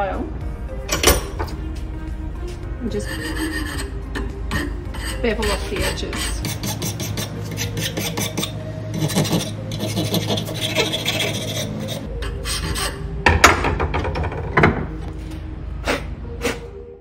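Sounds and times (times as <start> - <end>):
hand file rasping: 2.9 - 13.1.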